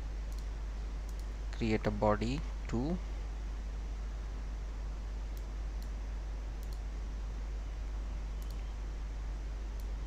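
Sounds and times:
low electrical hum: 0.0s - 10.0s
computer mouse clicks: 0.3s - 1.3s, 5.3s - 6.0s, 6.6s - 6.8s, 8.4s - 8.7s, 9.8s - 10.0s.

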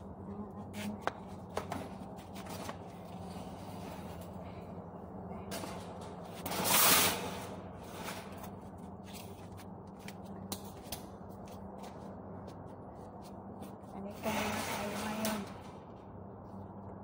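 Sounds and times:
steady low hum: 0.0s - 17.0s
shopping cart rasping on concrete: 6.4s - 8.4s, 14.2s - 15.5s.

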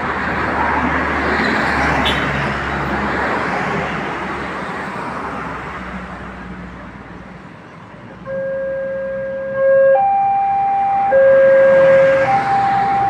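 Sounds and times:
two-tone crossing alarm: 8.2s - 13.0s.

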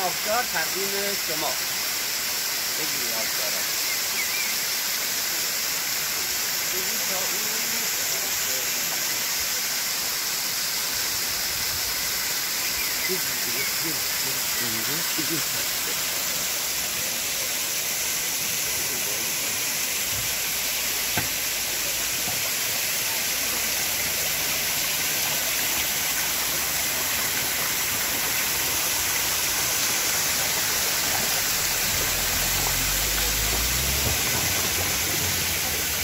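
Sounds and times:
waterfall hissing: 0.0s - 36.0s.

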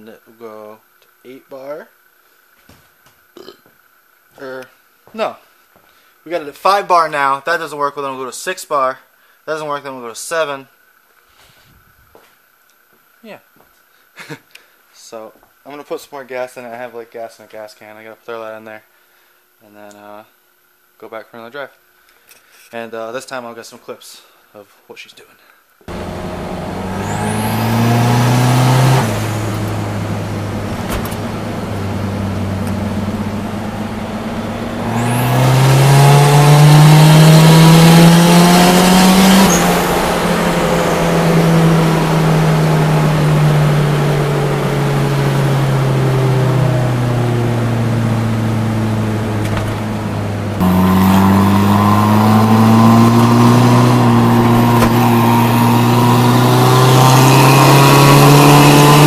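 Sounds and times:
car engine revving: 25.9s - 59.0s.

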